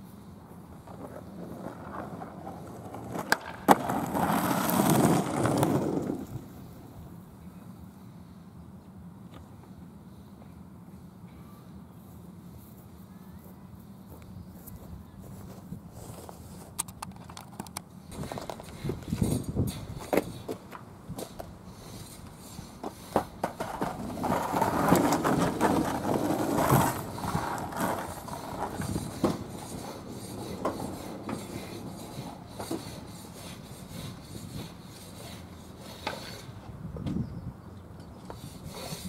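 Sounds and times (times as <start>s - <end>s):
skateboard wheels rolling on asphalt: 0.0s - 7.8s, 15.2s - 39.0s
skateboard clack: 0.8s - 6.5s, 16.8s - 37.2s
skateboard clicks and knocks: 0.8s - 6.5s, 16.7s - 37.2s.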